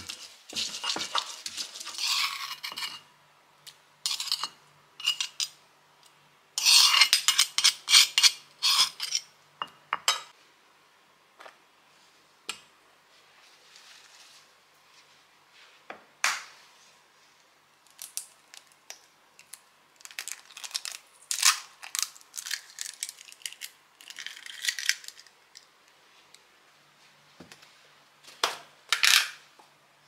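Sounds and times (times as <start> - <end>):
metal spoon scraping glass bowl: 0.5 - 3.0, 4.0 - 5.6, 6.6 - 9.3
stone pestle grinding in mortar: 6.6 - 9.2.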